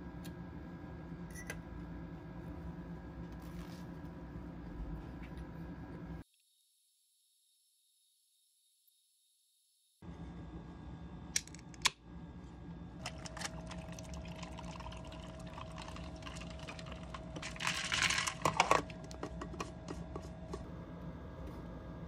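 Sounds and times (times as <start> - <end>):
drink pouring over ice: 13.0 - 18.9.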